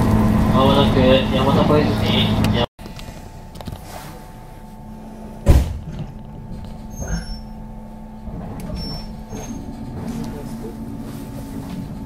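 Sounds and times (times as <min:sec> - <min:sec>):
train interior low hum: 0:00.0 - 0:12.0
train running sound: 0:00.0 - 0:12.0
brief knock: 0:05.4 - 0:06.0.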